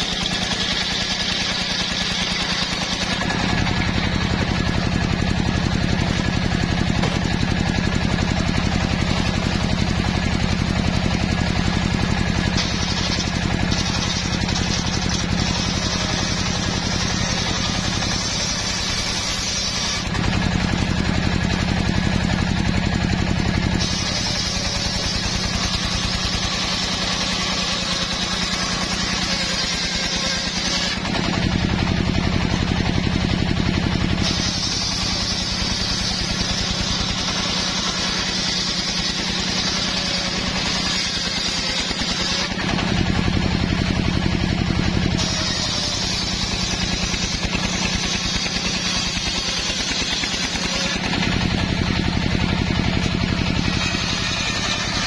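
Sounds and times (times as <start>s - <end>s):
engine running: 0.0s - 55.0s
saw blade cutting wood: 0.0s - 55.0s.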